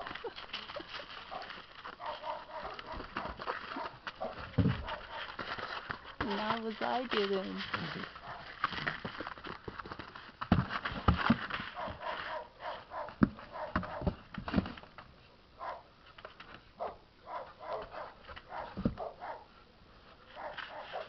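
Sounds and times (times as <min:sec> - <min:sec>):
knocks and scrabbling on cardboard: 0:00.0 - 0:12.4, 0:13.0 - 0:15.1, 0:17.8 - 0:19.1.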